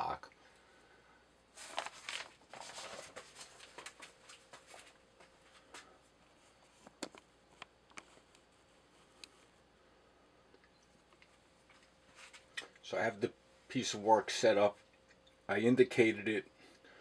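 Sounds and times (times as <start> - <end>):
paper rustling: 1.6 - 5.0
small clicks and taps: 6.8 - 8.4.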